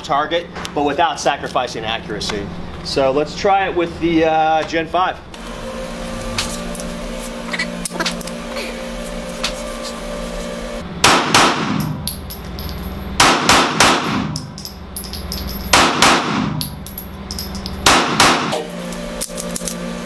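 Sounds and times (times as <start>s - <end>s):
pistol shots indoors: 11.0s - 11.9s, 13.2s - 14.4s, 15.7s - 16.7s, 17.8s - 18.6s.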